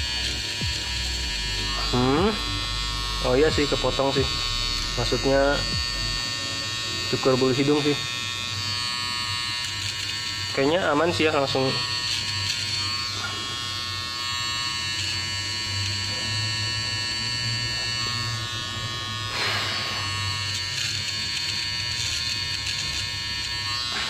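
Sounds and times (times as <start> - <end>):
electric trimmer buzzing: 0.0 - 24.0.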